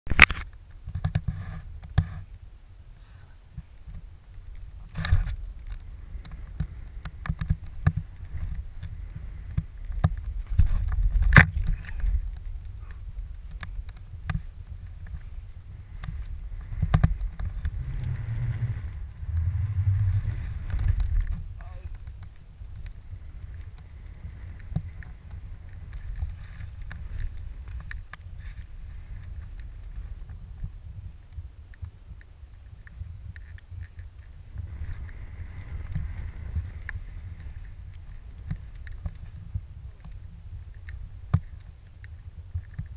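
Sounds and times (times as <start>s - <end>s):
wind buffeting microphone: 3.4s - 42.9s
snow spray ticking on camera: 3.5s - 42.9s
skis rushing through snow: 5.2s - 21.6s, 34.5s - 38.6s.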